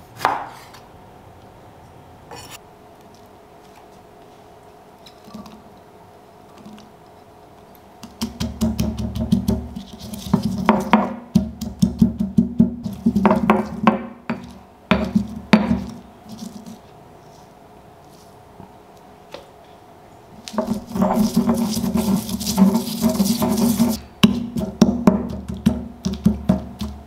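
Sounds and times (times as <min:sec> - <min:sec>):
pestle pounding in stone mortar: 0:08.0 - 0:16.0, 0:20.5 - 0:27.0.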